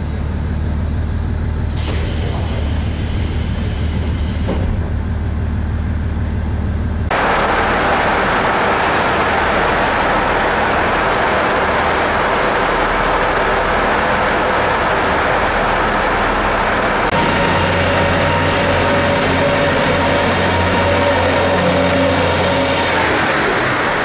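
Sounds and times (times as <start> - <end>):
steady rushing noise: 7.0 - 24.0.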